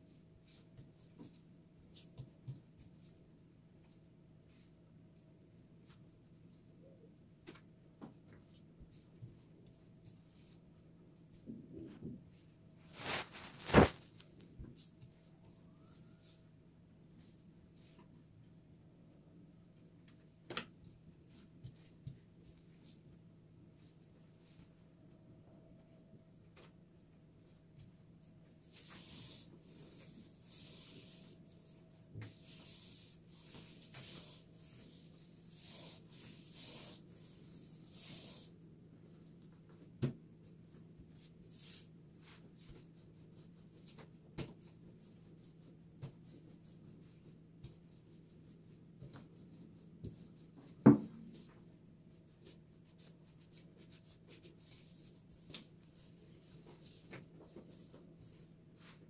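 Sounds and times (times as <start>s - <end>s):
rubbing strokes: 28.4s - 38.6s.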